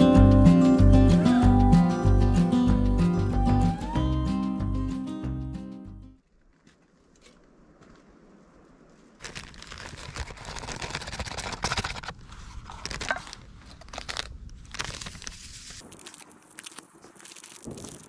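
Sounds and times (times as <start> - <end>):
music: 0.0 - 6.2
crunching and crackling with clicks: 8.9 - 18.0.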